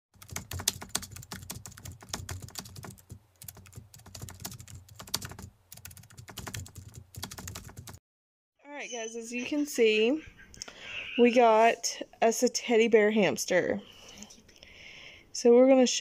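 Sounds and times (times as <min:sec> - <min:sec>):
rapid irregular clicking: 0:00.2 - 0:08.0.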